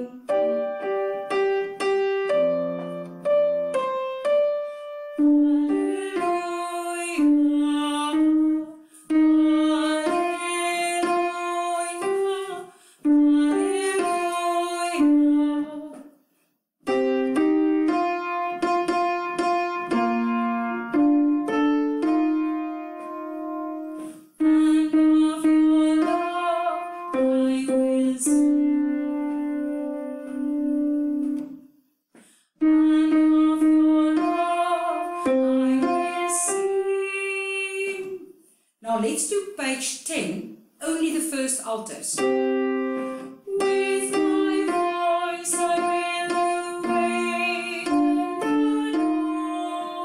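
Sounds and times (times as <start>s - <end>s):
woman singing choral line: 0.0s - 1.2s, 5.2s - 16.0s, 24.4s - 29.0s, 32.6s - 38.2s, 42.2s - 50.0s
piano: 0.0s - 16.1s, 16.8s - 31.8s, 32.6s - 38.2s, 42.1s - 50.0s.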